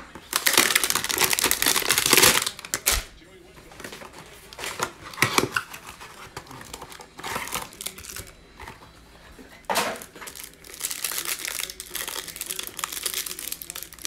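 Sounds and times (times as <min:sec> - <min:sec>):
plastic wrap crinkling: 0:00.0 - 0:03.1, 0:03.7 - 0:08.9, 0:09.6 - 0:14.0
cardboard box opening: 0:03.8 - 0:08.8.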